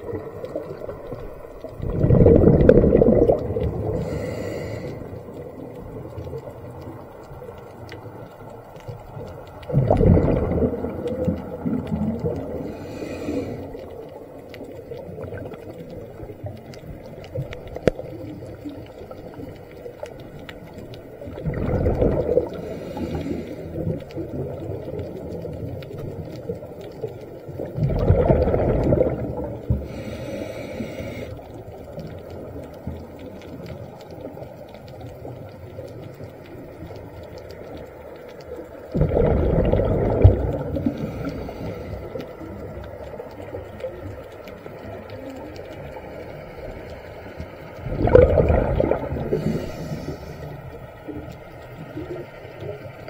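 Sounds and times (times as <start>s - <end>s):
exhaled bubbles rumbling underwater: 0.0s - 53.0s
hissing inhalation through regulator: 3.7s - 5.3s, 12.4s - 14.0s, 22.4s - 24.0s, 29.7s - 31.5s, 40.7s - 42.5s, 49.0s - 50.8s.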